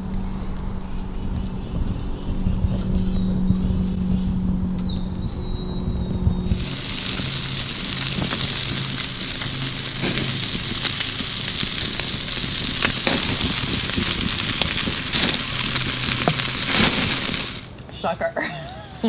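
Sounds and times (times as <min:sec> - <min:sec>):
pops and crackles: 0:04.8 - 0:17.7
patties sizzling on a grill: 0:06.0 - 0:17.7.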